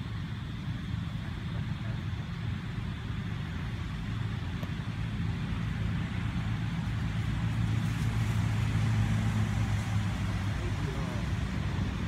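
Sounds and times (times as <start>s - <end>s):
low engine rumble: 0.0s - 12.0s.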